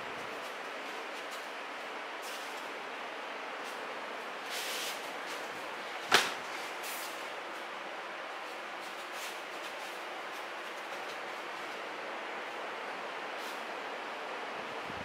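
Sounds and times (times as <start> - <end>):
bare feet moving over mats: 0.0 - 2.8, 3.5 - 12.6
rustling of cotton uniforms: 0.0 - 2.8, 3.5 - 14.2
background hiss: 0.0 - 15.0
sharp slap: 6.1 - 6.4.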